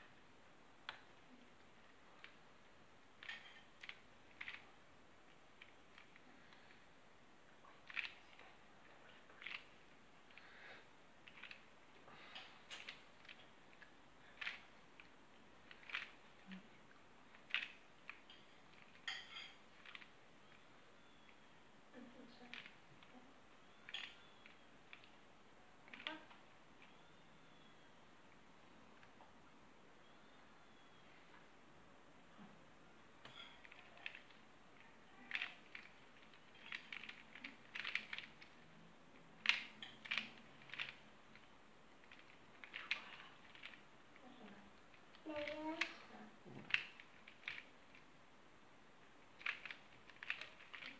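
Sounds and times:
plastic puzzle clacking: 3.1 - 6.9, 7.6 - 10.5, 11.2 - 21.6, 22.4 - 27.8, 33.2 - 48.2, 49.1 - 50.9.

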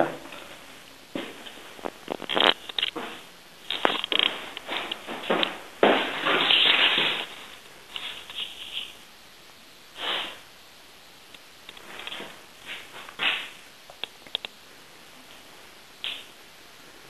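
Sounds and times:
rubbing rustle: 1.2 - 9.0.

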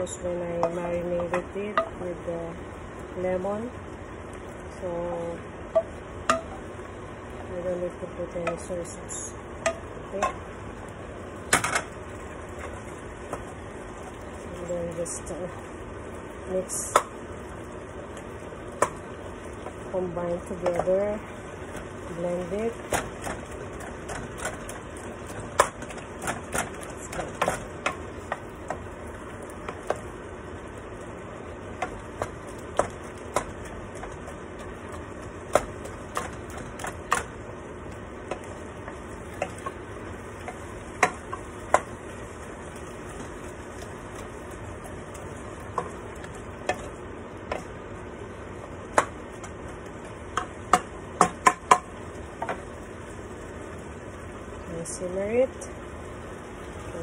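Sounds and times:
meat sizzling: 0.0 - 57.0
spoon knocking against pan: 5.7 - 6.6, 9.6 - 10.4.

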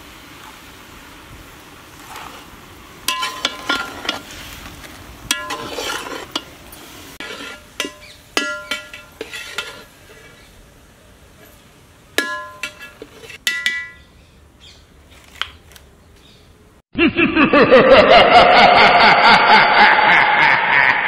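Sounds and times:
mushrooms sizzling in oil: 0.0 - 13.4
metal spatula scraping a pot: 3.1 - 4.6, 5.3 - 10.6, 12.2 - 14.0.

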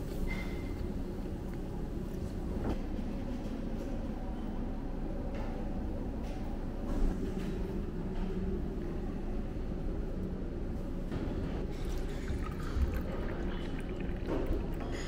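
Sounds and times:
tea pouring into cup: 11.7 - 15.0.

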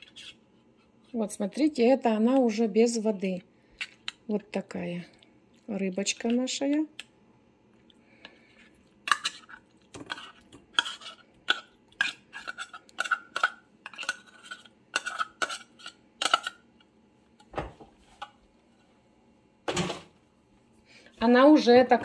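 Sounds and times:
metal spoon scraping a tin can: 9.1 - 16.6.

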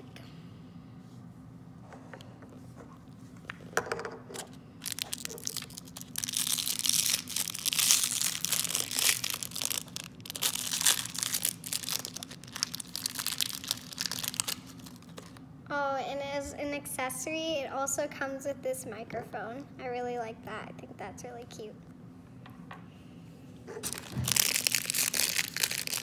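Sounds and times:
plastic wrapper crackling: 4.8 - 15.4, 23.8 - 26.0.

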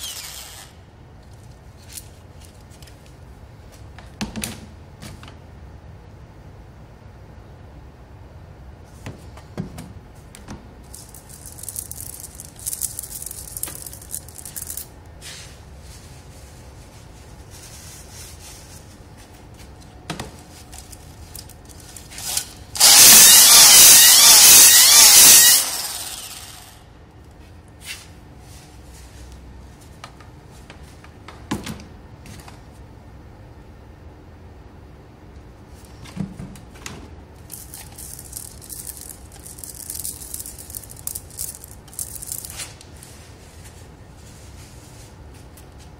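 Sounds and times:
drill whirring scrape: 0.0 - 0.8, 22.2 - 26.8.

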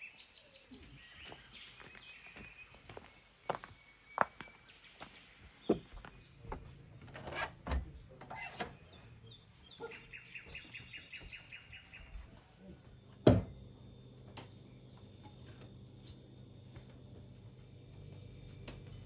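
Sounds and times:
small bird chirping: 8.4 - 13.1
footsteps: 10.4 - 12.9.

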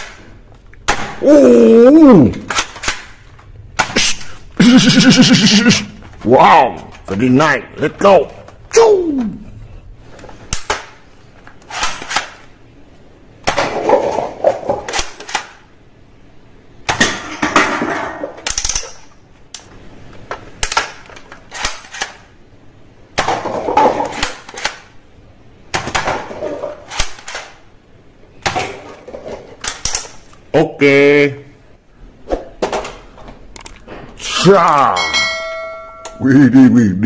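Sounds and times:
toy guns clicking: 14.9 - 15.7, 18.4 - 19.7, 20.6 - 22.3, 24.2 - 25.0, 29.6 - 30.4.

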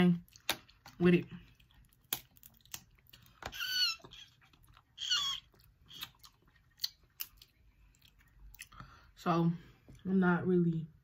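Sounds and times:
shellfish being picked apart and chewed: 0.2 - 9.0.

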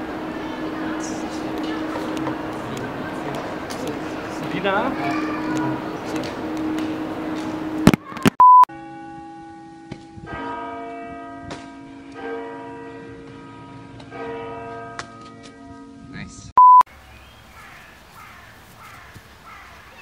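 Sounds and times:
church bells ringing: 0.0 - 7.9, 8.7 - 16.1
short loud beep: 8.4 - 8.7, 16.6 - 16.9.

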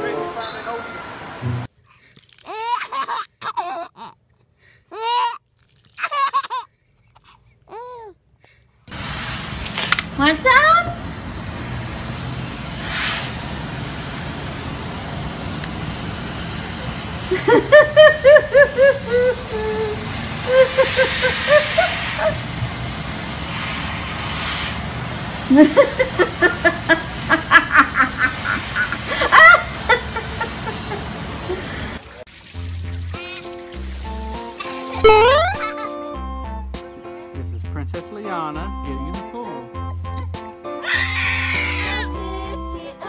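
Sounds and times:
children laughing: 16.6 - 22.8, 25.5 - 32.0, 35.1 - 36.0.

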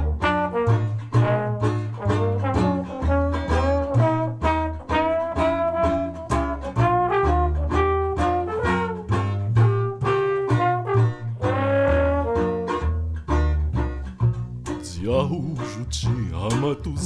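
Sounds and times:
jazz brass band playing: 0.0 - 13.6
plucked banjo: 0.0 - 17.0.

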